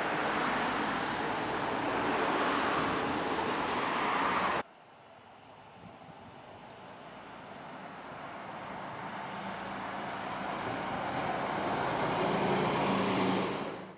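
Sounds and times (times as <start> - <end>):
bus engine hum: 0.0 - 13.9.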